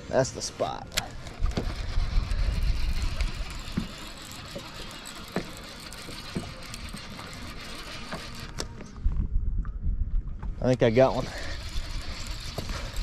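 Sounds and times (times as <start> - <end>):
wind buffeting microphone: 1.1 - 4.0, 8.9 - 13.0.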